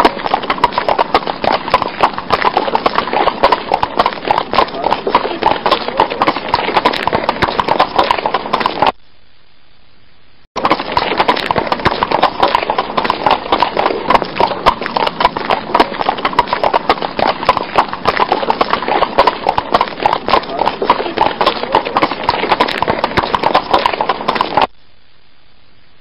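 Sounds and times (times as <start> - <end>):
horse hooves clip-clopping: 0.0 - 9.0, 10.6 - 24.7.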